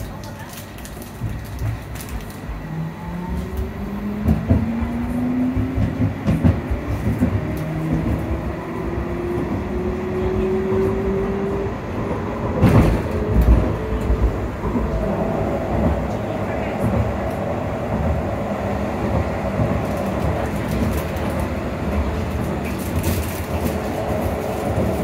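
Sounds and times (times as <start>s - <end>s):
wheels rumbling on rail: 0.0s - 25.0s
tram motor whine rising: 2.3s - 16.2s.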